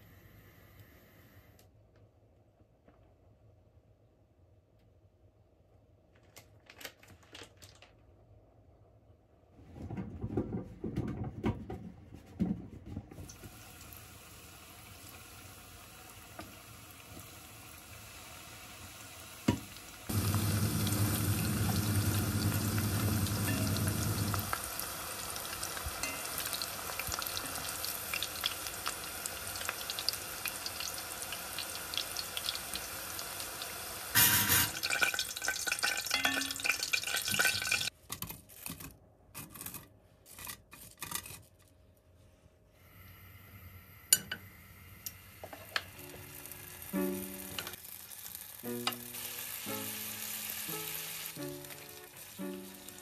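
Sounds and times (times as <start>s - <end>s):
potatoes deep-frying in oil: 13.2s - 37.9s, 45.4s - 53.0s.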